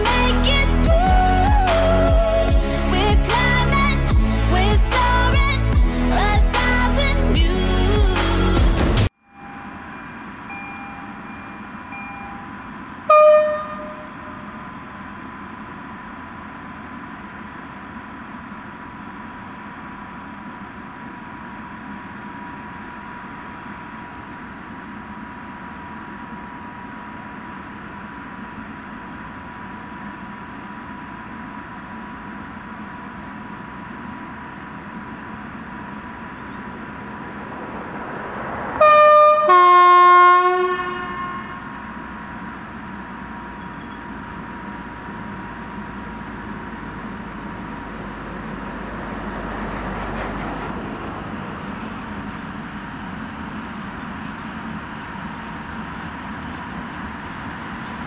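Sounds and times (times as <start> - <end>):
electric locomotive pulling away: 0.0 - 58.0
two-note locomotive horn: 9.2 - 15.2, 38.6 - 42.1
locomotive horn blast: 13.0 - 14.6, 36.5 - 42.0.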